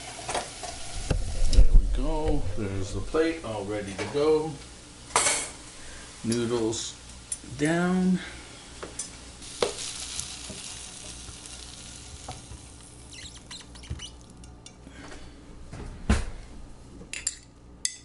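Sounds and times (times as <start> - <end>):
stir-fry sizzling in a frying pan: 0.0 - 1.5, 3.5 - 14.4.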